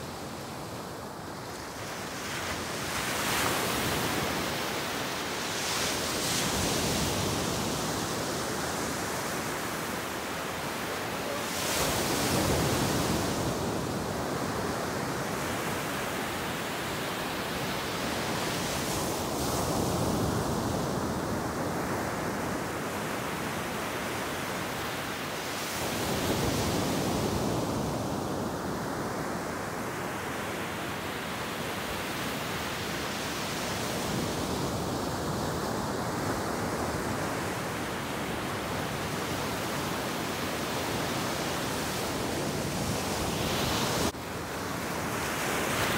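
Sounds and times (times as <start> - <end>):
ocean surf breaking on beach: 0.0 - 45.9.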